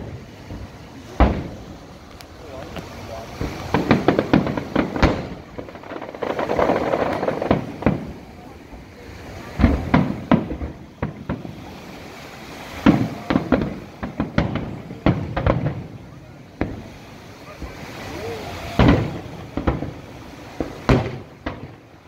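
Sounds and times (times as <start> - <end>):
firework shells bursting: 0.0 - 8.3, 18.6 - 21.9.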